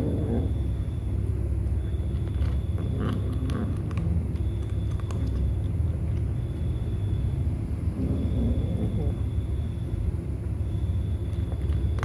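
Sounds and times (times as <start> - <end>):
cat crunching kibble: 0.0 - 7.0, 11.2 - 12.0.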